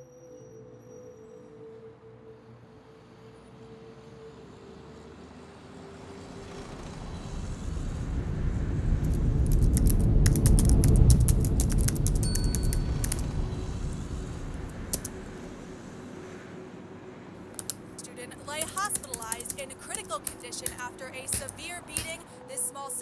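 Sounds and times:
passing vehicle rumble: 3.5s - 22.6s
sharp clicks: 9.1s - 13.3s, 14.9s - 15.2s, 17.5s - 17.8s, 18.6s - 22.2s.

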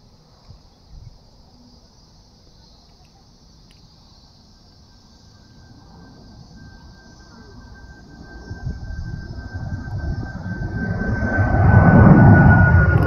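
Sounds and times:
insects chorus: 0.0s - 13.0s
distant jet airliner rumble: 3.4s - 13.0s.

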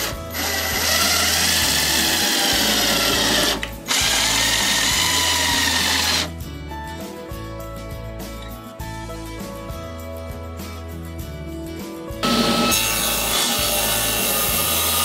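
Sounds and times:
power drill driving screws: 0.0s - 6.3s, 12.2s - 15.0s.

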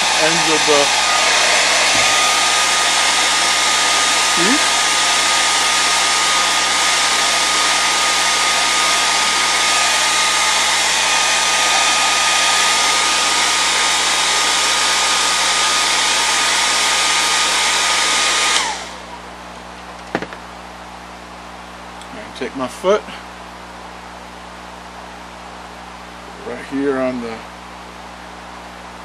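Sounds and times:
hair dryer blowing with high whine: 0.0s - 20.4s, 26.3s - 29.0s.

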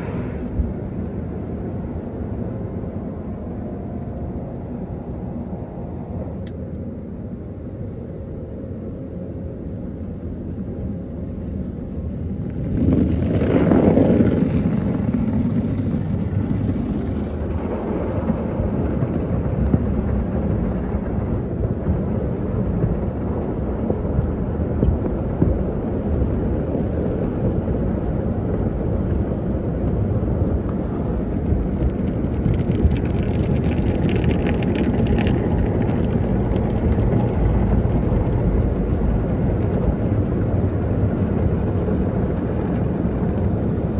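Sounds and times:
crackly water spatter: 23.7s - 43.7s.

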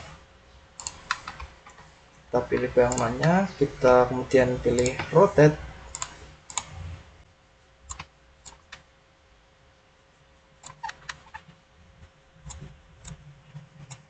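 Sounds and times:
faint room hiss: 0.0s - 14.0s
low steady hum: 0.0s - 14.0s
keyboard and mouse clicks: 0.8s - 1.9s, 2.5s - 3.4s, 4.8s - 5.2s, 5.9s - 6.8s, 7.9s - 8.8s, 10.6s - 11.6s, 12.4s - 14.0s.

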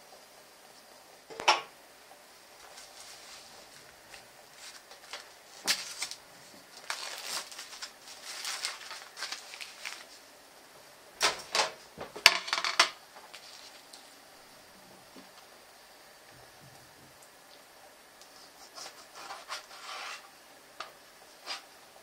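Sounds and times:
plastic film crackling: 2.6s - 10.4s, 11.2s - 14.2s
knife slitting plastic film: 4.1s - 6.2s, 6.8s - 10.1s.

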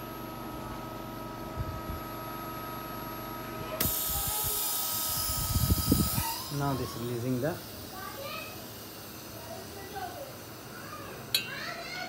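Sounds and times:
furnace machine hum with whine: 0.0s - 12.0s
hiss of air release: 3.8s - 6.7s.

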